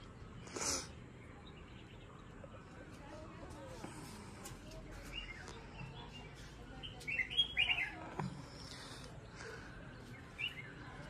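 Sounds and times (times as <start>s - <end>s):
bird chirping: 5.0s - 11.0s.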